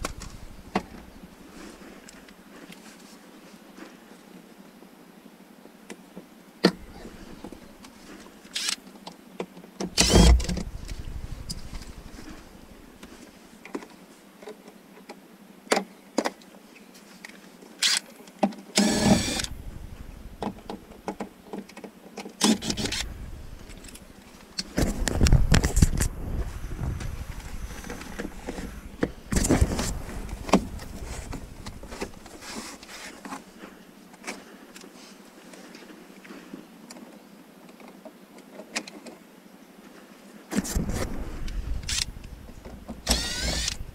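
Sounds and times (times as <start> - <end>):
parts bumping and rustling: 9.8 - 13.9, 22.4 - 34.4
plastic creak: 22.4 - 26.1, 43.0 - 43.9.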